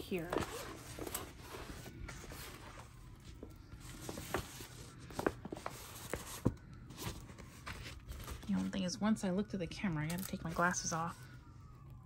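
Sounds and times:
paper rustling: 0.1s - 8.7s.

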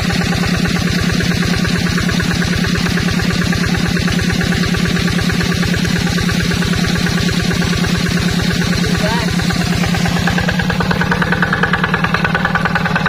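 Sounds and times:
diesel engine idling: 0.0s - 13.0s.

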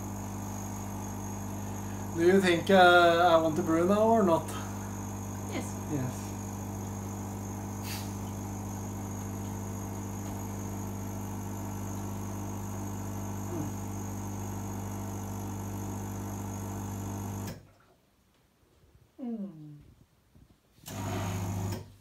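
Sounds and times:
pump electric hum: 0.0s - 17.9s, 20.8s - 22.0s.

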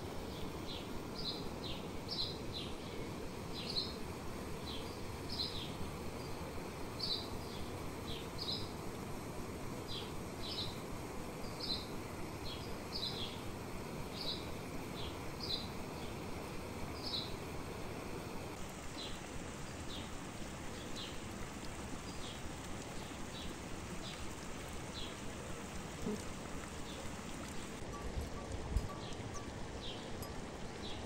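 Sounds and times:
stream water rushing: 0.0s - 31.0s
bird chirping: 28.8s - 30.2s.

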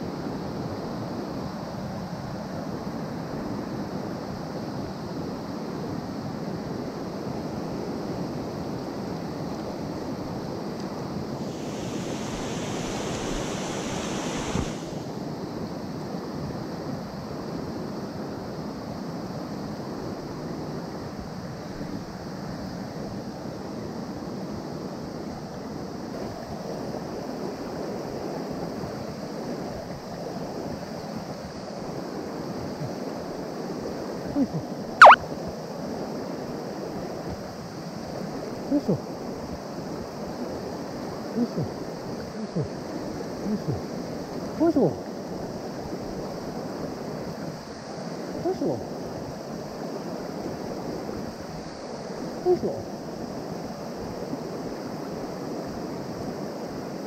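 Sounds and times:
stream rushing over rocks: 11.4s - 15.0s.

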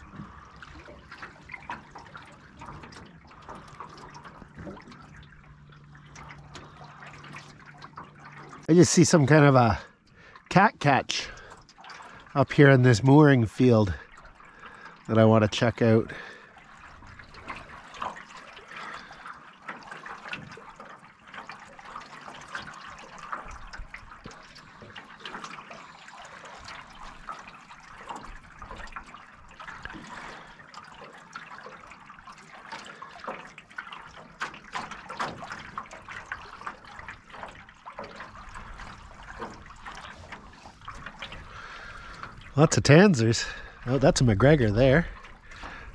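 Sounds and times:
waves lapping against metal hull: 0.0s - 45.9s.

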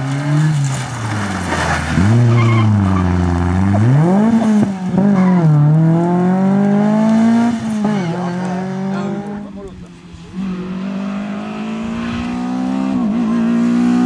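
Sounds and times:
rally car engine revving: 0.0s - 14.0s
tyre squeal: 1.3s - 3.3s.

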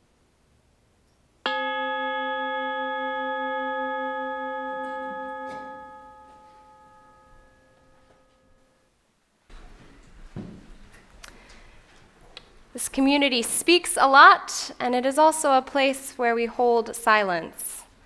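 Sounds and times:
meditation chime ringing: 1.5s - 8.9s.

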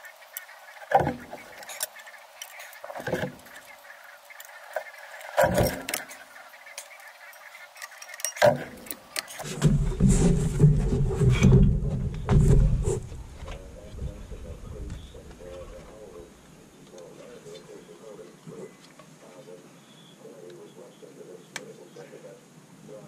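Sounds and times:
loud knocks: 9.5s - 13.0s
loud low rumbling: 9.7s - 15.8s.

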